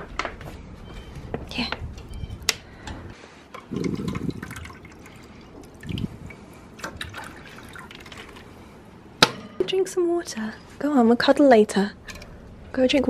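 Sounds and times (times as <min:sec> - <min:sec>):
water sloshing in plastic bottle: 0:03.6 - 0:08.7.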